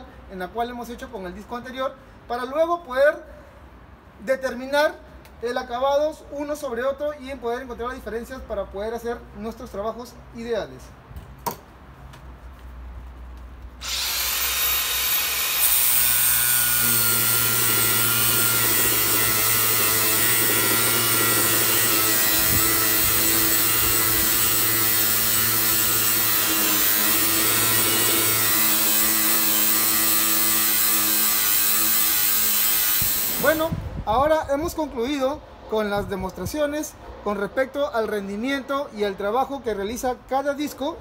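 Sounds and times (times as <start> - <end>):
angle grinder grinding metal: 13.8 - 33.6.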